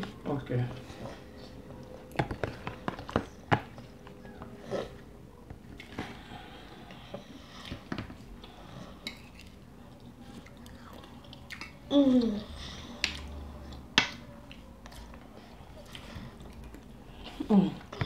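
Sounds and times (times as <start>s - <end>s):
chewing: 5.6s - 11.8s, 12.8s - 18.0s.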